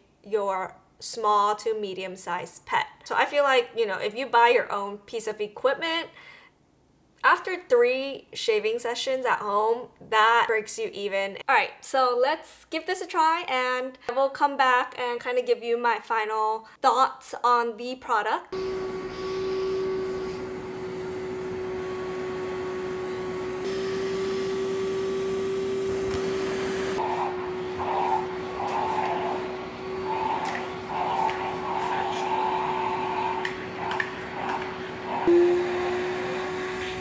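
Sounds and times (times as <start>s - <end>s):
grooming vacuum whining: 18.6s - 37.0s.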